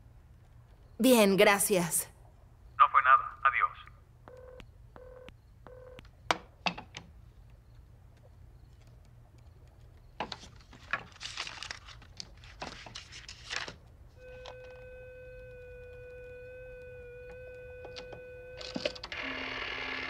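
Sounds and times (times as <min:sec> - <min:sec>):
steady dial tone: 0:04.3 - 0:06.0, 0:14.2 - 0:20.0.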